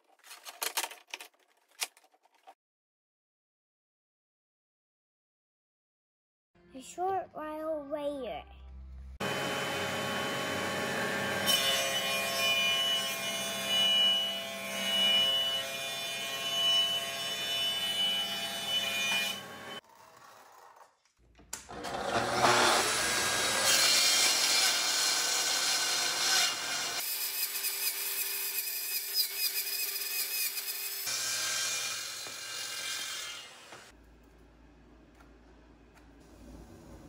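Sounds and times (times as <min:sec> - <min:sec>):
thickness planer running: 0:09.2 - 0:11.5, 0:21.6 - 0:24.5
track saw whining and cutting wood: 0:09.2 - 0:20.6, 0:21.7 - 0:27.1, 0:29.0 - 0:33.9.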